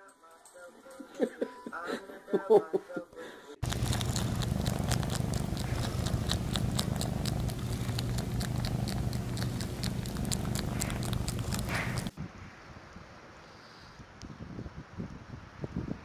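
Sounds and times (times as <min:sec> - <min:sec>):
cat purring: 0:03.6 - 0:12.2.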